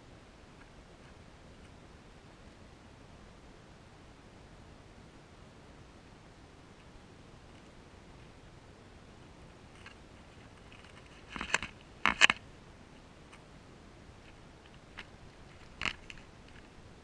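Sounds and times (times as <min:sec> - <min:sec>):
faint hiss: 0:00.0 - 0:17.0
rats nibbling and scratching: 0:09.7 - 0:12.4, 0:14.2 - 0:16.8.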